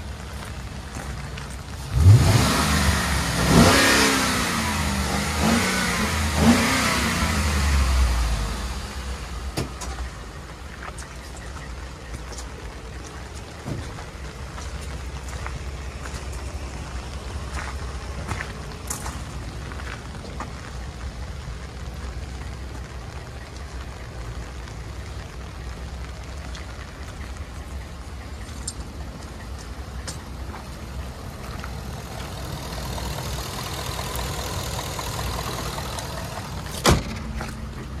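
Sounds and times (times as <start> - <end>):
truck engine idling: 7.2 - 38.0.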